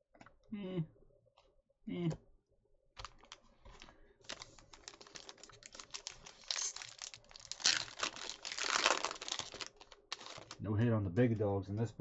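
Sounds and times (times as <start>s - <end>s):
foil wrapper crinkling: 3.0s - 10.6s.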